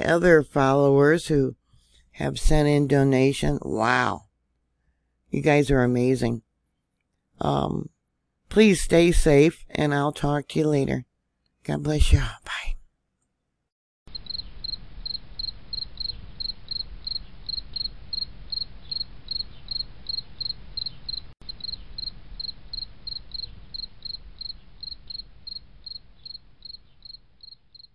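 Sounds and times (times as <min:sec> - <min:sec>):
insect chirping: 0:14.1 - 0:27.9.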